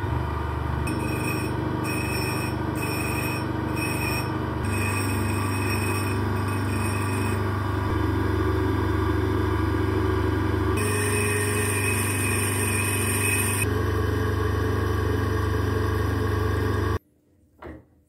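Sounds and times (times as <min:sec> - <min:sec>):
bench grinder motor humming: 0:00.0 - 0:17.0
metal grinding on wheel: 0:00.8 - 0:07.9, 0:10.8 - 0:13.7.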